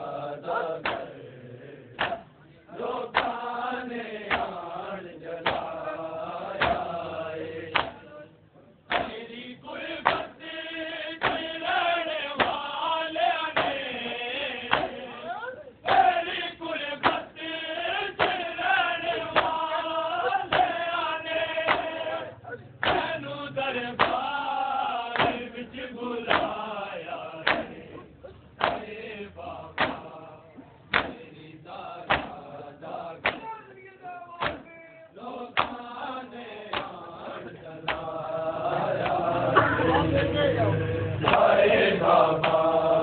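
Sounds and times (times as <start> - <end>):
crowd of men chanting: 0.0 - 43.0
chest-beating slaps: 0.8 - 1.2, 2.0 - 2.3, 3.1 - 3.4, 4.2 - 4.6, 5.4 - 5.8, 6.5 - 7.0, 7.7 - 8.1, 8.9 - 9.2, 10.0 - 10.4, 11.2 - 11.5, 12.4 - 12.7, 13.5 - 13.9, 14.6 - 15.2, 15.9 - 16.2, 17.0 - 17.3, 18.2 - 18.5, 19.2 - 19.9, 20.5 - 20.8, 21.7 - 22.2, 22.8 - 23.2, 24.0 - 24.3, 25.1 - 25.5, 26.2 - 26.7, 27.4 - 29.0, 29.8 - 30.2, 30.9 - 31.4, 32.0 - 32.6, 33.2 - 33.6, 34.4 - 34.8, 35.5 - 35.9, 36.7 - 38.2, 38.9 - 39.7, 41.2 - 41.6, 42.4 - 42.7.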